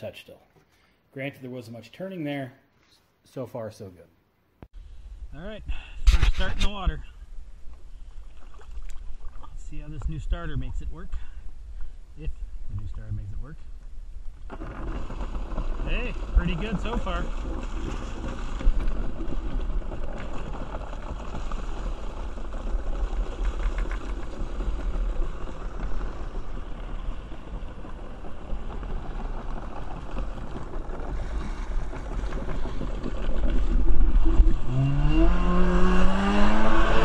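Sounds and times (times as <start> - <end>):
jet ski engine accelerating: 34.2 - 37.0.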